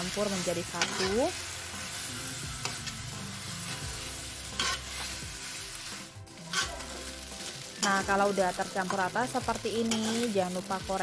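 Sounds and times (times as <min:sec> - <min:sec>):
food sizzling in a wok: 0:00.0 - 0:11.0
spatula scraping a pan: 0:00.3 - 0:02.9, 0:03.6 - 0:08.2, 0:09.8 - 0:10.3.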